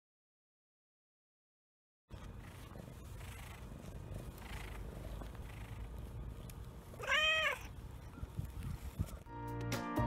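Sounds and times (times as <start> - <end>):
cat purring: 2.1 - 9.2
cat meowing: 7.0 - 7.8.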